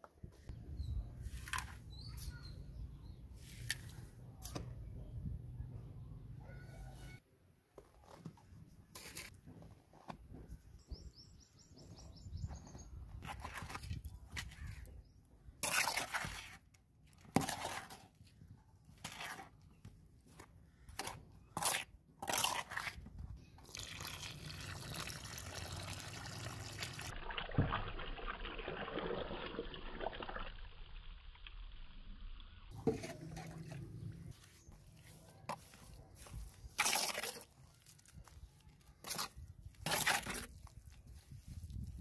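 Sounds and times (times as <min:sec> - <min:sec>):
trowel scraping dry cement: 0:08.9 - 0:09.4, 0:13.2 - 0:15.0, 0:15.6 - 0:23.2, 0:32.7 - 0:42.0
water pouring in a trickle: 0:23.6 - 0:32.3.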